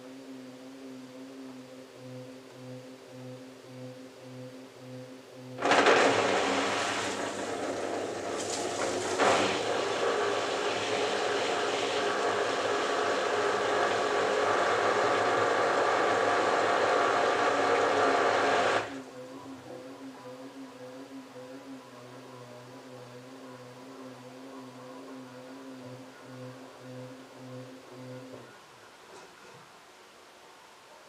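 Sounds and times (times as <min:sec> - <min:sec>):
low hum of drum motor: 0:00.0 - 0:30.8
washing machine drain pump: 0:05.6 - 0:28.3.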